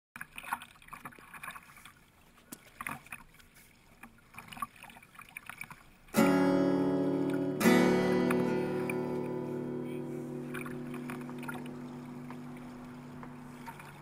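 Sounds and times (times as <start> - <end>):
paddle splashing water: 0.2 - 14.0
acoustic guitar music: 6.1 - 14.0.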